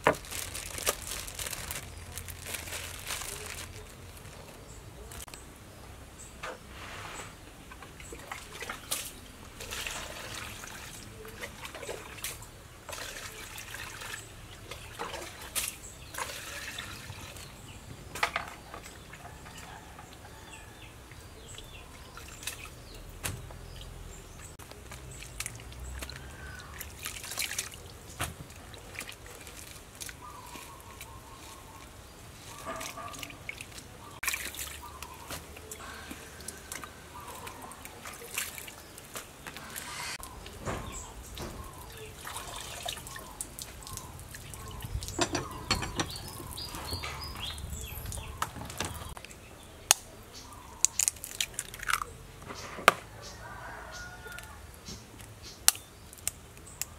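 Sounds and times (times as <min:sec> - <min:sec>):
water splashing in plastic bowl: 0:08.0 - 0:17.7, 0:24.7 - 0:31.9, 0:32.5 - 0:39.4, 0:40.8 - 0:49.3.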